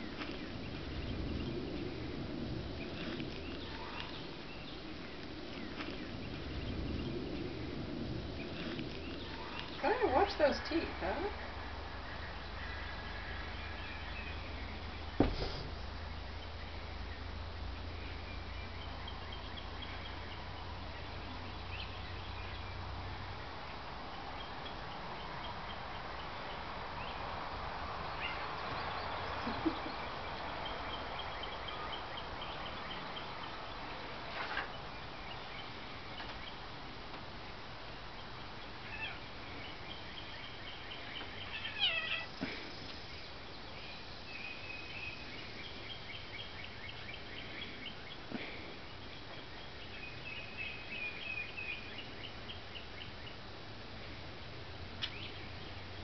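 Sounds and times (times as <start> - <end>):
birds chirping: 0.0 - 56.0
faint knocks: 15.2 - 15.8.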